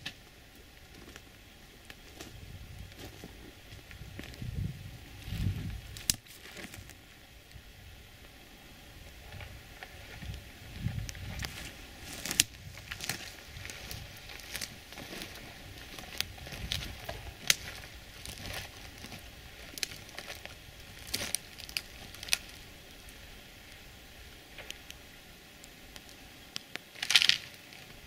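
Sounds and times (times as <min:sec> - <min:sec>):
rustling crackles: 0:00.0 - 0:28.0.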